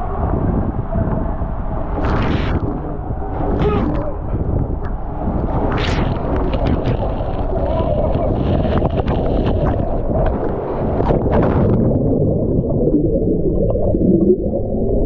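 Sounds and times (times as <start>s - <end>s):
underwater rumble and bubbles: 0.0s - 15.0s
water rushing in slide tube: 0.0s - 15.0s.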